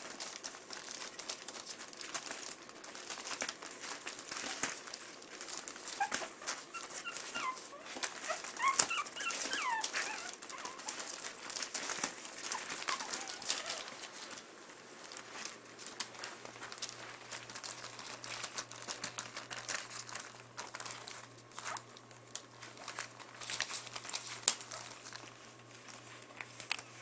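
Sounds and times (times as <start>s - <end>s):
newspaper crinkling: 0.0s - 27.0s
puppies whimpering and squeaking: 3.8s - 14.4s, 23.4s - 25.3s.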